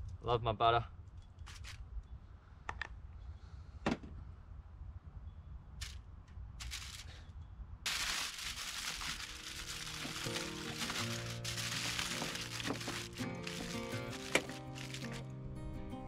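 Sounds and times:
aluminium foil crinkling: 0:06.6 - 0:07.2, 0:07.9 - 0:15.2.

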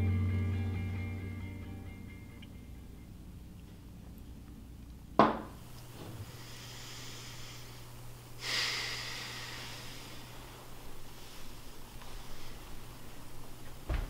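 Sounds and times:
steady low hum: 0:00.0 - 0:14.0
person exhaling through nose: 0:08.4 - 0:10.4.

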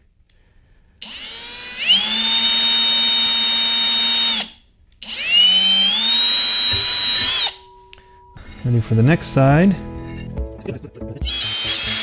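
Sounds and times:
cordless drill whining: 0:01.0 - 0:07.8, 0:11.2 - 0:12.0.

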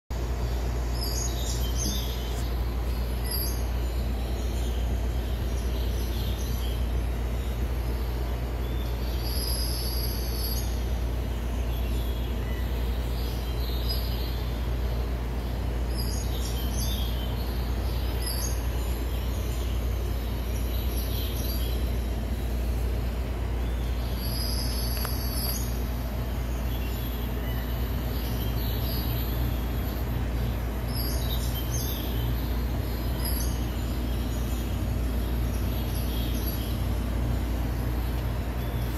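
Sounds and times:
high bird chirps: 0:00.5 - 0:14.6, 0:23.6 - 0:38.9.

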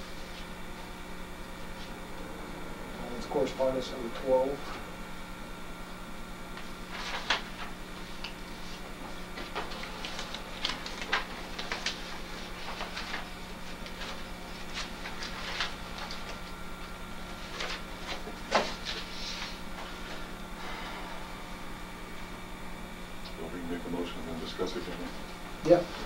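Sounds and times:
low electrical hum: 0:00.0 - 0:26.0
papers rustling: 0:06.9 - 0:16.6, 0:17.3 - 0:19.6.

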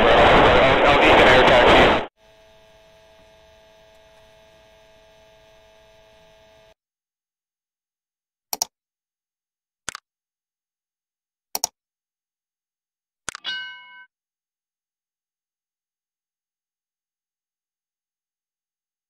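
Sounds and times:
faint steady hum: 0:02.2 - 0:06.7
mouse-click sound effects: 0:08.5 - 0:08.7, 0:11.6 - 0:11.8.

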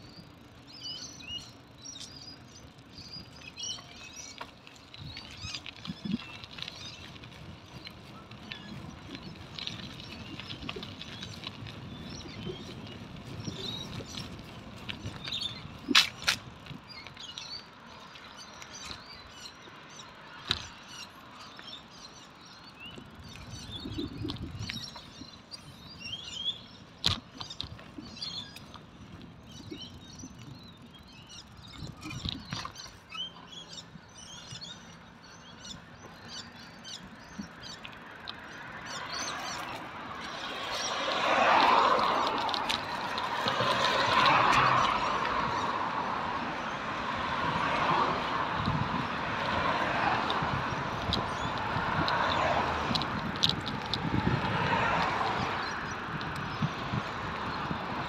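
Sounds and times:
birds chirping: 0:00.0 - 0:58.0
car passing on road: 0:34.8 - 0:58.0.

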